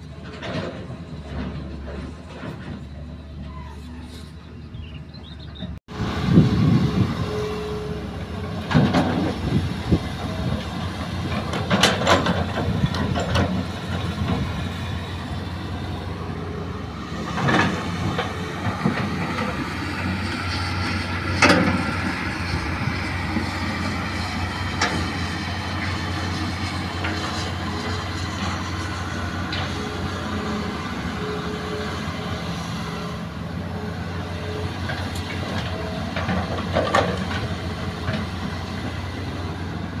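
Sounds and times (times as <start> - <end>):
excavator diesel engine running: 0.0 - 40.0.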